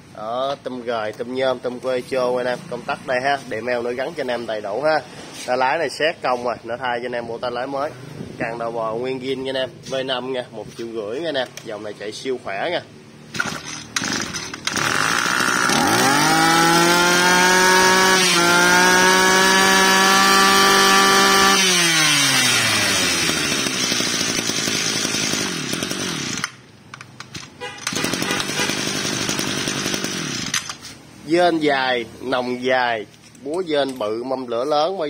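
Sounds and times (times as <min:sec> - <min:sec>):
brush-cutter engine revving: 0:13.3 - 0:30.9.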